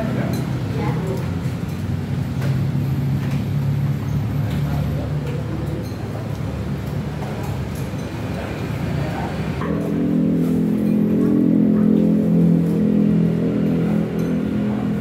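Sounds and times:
traffic engine hum: 0.0 - 15.0
faint voices: 4.2 - 15.0.

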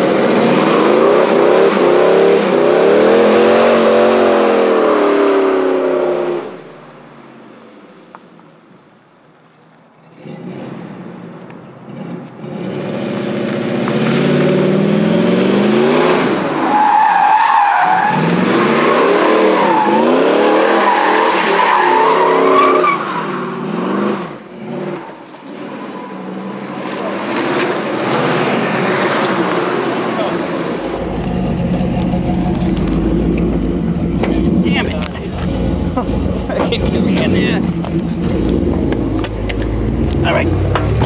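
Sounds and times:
car engine revving: 0.0 - 6.7, 10.1 - 41.0
tires squealing: 11.9 - 41.0.

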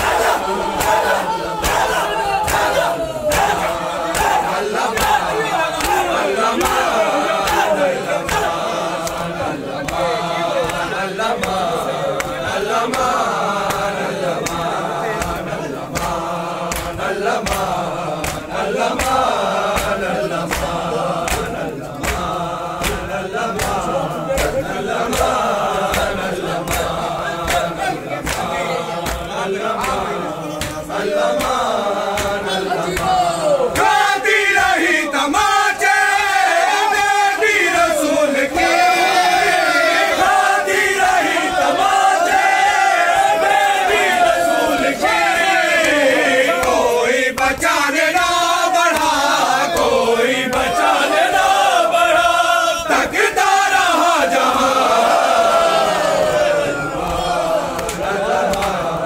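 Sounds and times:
sharp slaps: 0.0 - 34.9, 45.1 - 50.8, 57.0 - 59.0
hands beating chests: 0.0 - 37.6
crowd of men chanting: 0.0 - 59.0.

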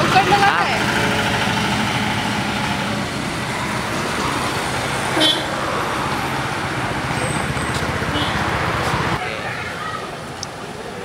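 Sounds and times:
road traffic: 0.0 - 11.0.

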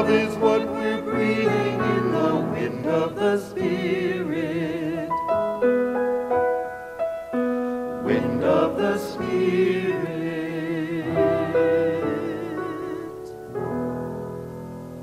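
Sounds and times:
group of people singing: 0.0 - 5.7, 8.0 - 13.4
piano playing a hymn: 0.0 - 15.0.

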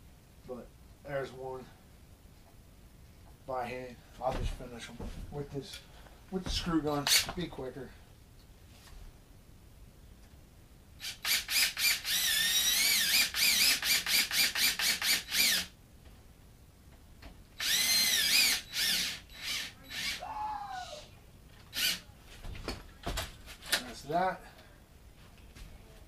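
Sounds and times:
cordless screw gun whining: 11.0 - 15.7, 17.6 - 20.2, 21.7 - 22.0.

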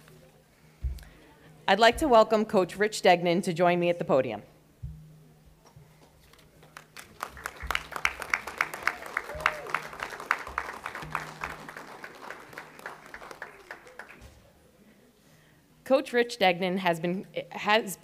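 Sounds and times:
audience applauding: 6.6 - 14.3.

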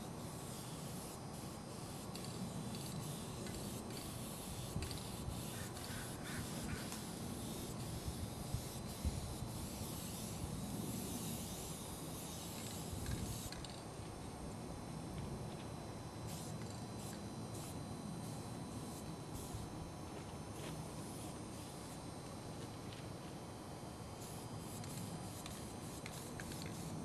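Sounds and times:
steady background hiss: 0.0 - 27.0
spray can hissing bursts: 0.2 - 13.8, 24.2 - 26.9.

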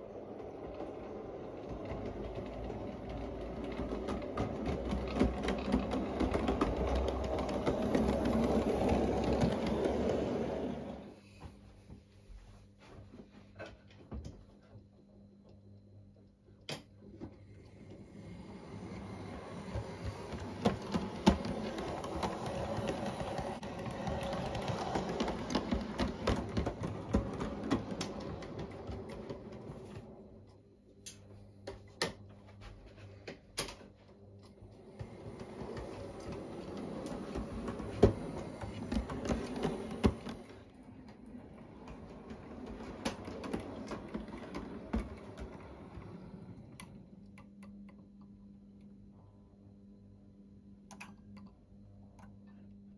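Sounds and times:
wheels clicking over rail joints: 0.0 - 11.1, 18.9 - 30.1, 35.0 - 47.0.

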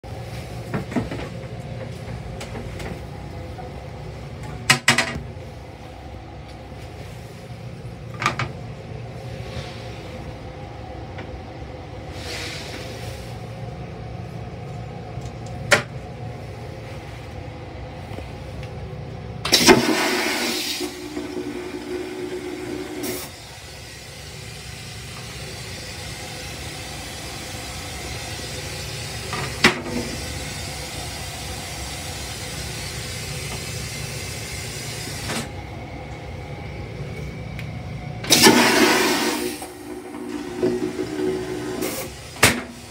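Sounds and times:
railcar low rumble: 0.0 - 42.9
toilet flushing: 19.4 - 35.6, 38.2 - 42.9.

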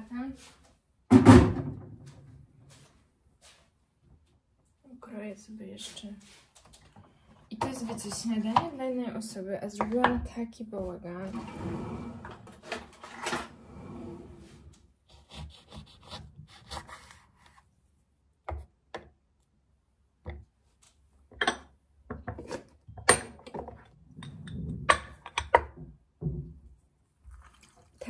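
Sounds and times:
knife scraping lemon: 15.1 - 17.6.

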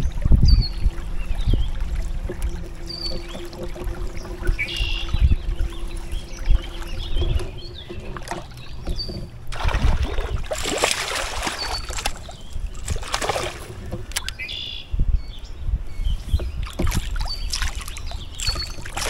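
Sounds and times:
kayak water splashes: 0.0 - 14.8, 16.3 - 19.0
steady low rumble: 0.0 - 19.0.

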